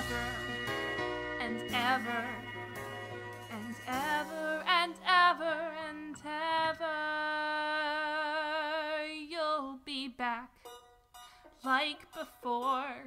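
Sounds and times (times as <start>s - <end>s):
woman singing: 0.0s - 0.8s, 1.4s - 2.7s, 3.5s - 10.6s, 11.5s - 13.0s
sparse musical backing: 0.0s - 5.7s.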